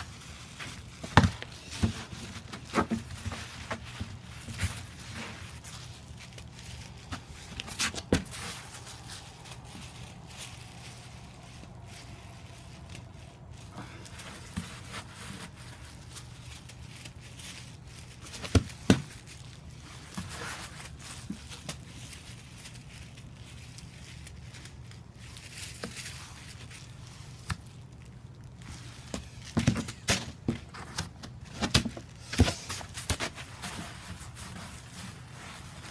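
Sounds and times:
hands packing wet snow: 0.0 - 21.9
steady low hum: 0.0 - 25.6.

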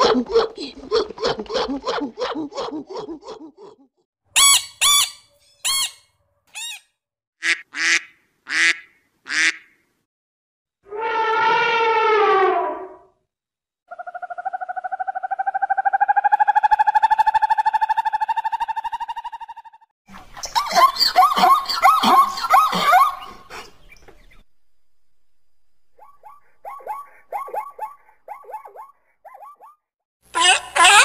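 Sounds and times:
duck quacks: 7.4 - 9.8.

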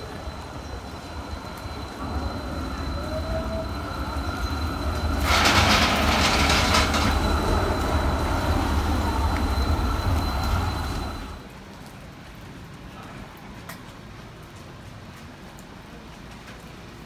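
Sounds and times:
tram rumbling past: 0.0 - 11.6.

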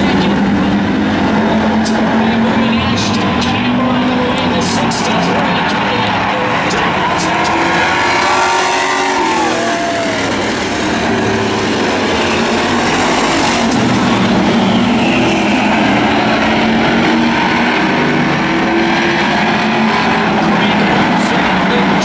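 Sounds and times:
race car engines roaring: 0.0 - 22.0
tyre squeal: 14.6 - 16.2.

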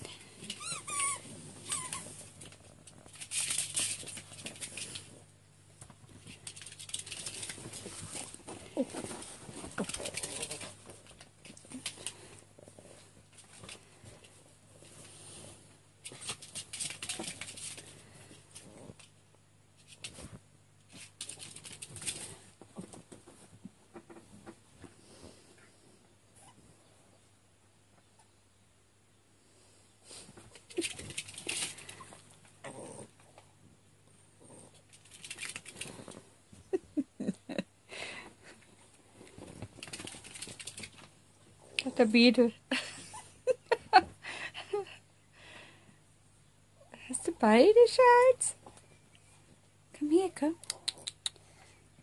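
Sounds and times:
dog claws scratching on floor: 0.4 - 5.2
dog squeaks: 0.5 - 2.1.

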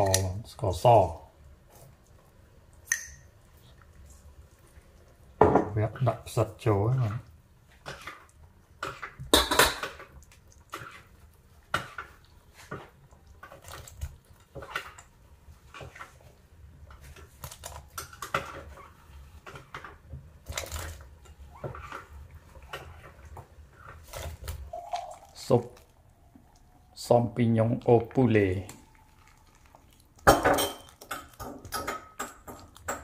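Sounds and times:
ladle and dishes clinking on pot: 30.2 - 33.0.

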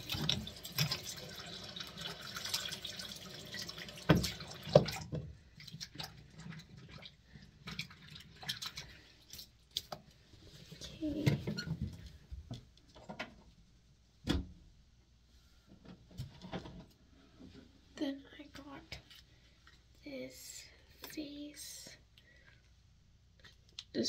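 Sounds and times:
water running at a sink: 0.0 - 9.5
water dripping: 0.0 - 10.0.

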